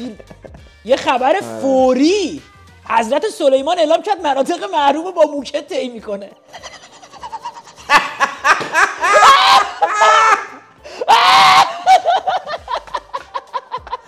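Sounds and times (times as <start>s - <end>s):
men laughing hard: 6.5s - 14.0s
high-pitched shriek of laughter: 9.0s - 12.1s.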